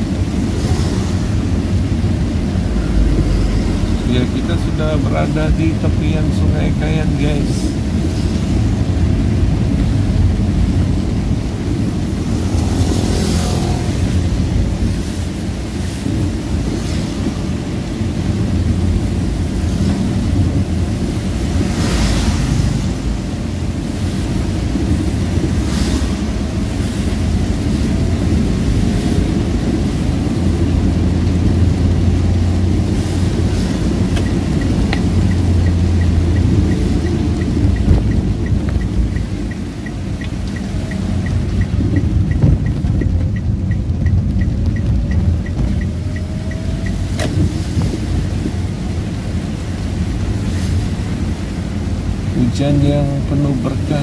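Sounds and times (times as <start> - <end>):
rain and tyres on wet road: 0.0 - 54.0
spray swishes of passing vehicles: 8.0 - 42.3.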